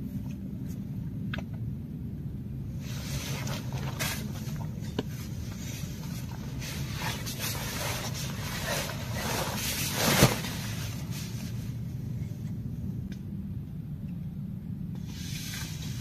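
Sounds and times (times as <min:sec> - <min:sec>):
nylon sleeping bag rustling: 0:02.8 - 0:11.8.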